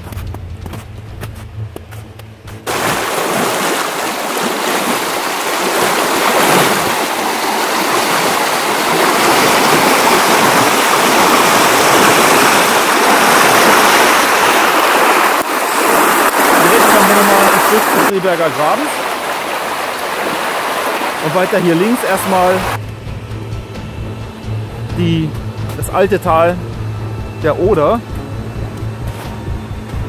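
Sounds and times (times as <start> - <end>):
low hum: 0.0 - 3.6, 22.6 - 30.0
water rushing over rocks: 2.7 - 22.8.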